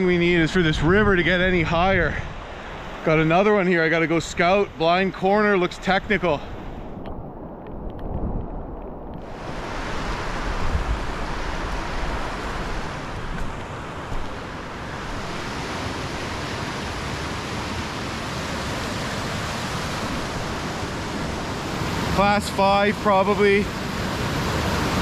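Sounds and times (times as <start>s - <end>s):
whitewater rapid rushing: 9.3s - 25.0s.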